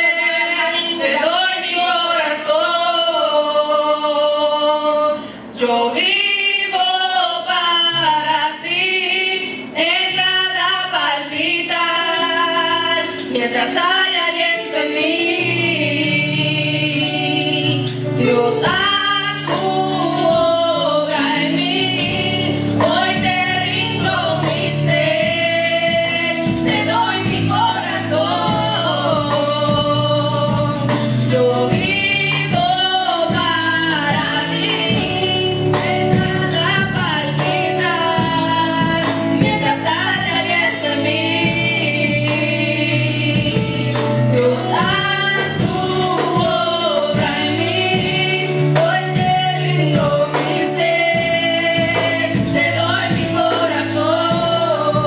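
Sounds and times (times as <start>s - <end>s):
women singing gospel over a pa: 0.0s - 55.0s
low held backing notes: 4.5s - 55.0s.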